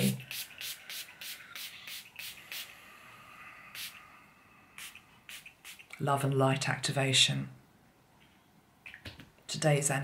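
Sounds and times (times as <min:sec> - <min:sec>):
spray bottle spraying: 0:00.0 - 0:02.7, 0:04.8 - 0:06.0.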